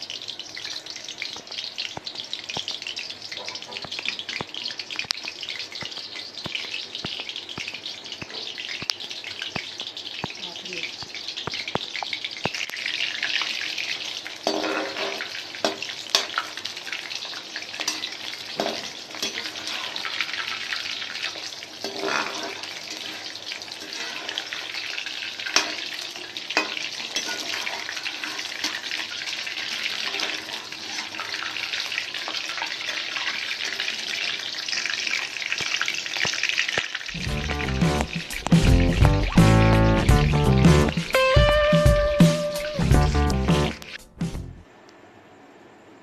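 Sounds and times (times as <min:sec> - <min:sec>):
chicken deep-frying in oil: 0:00.0 - 0:44.1
metal spoon scraping pan: 0:14.4 - 0:16.5, 0:21.8 - 0:24.8, 0:25.4 - 0:26.0, 0:26.6 - 0:29.1.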